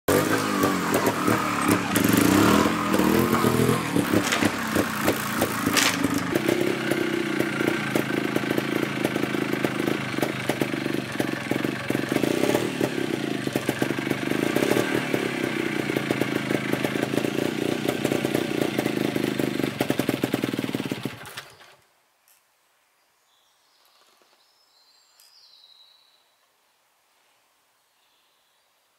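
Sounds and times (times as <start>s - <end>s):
motorcycle engine idling and revving: 0.1s - 21.8s.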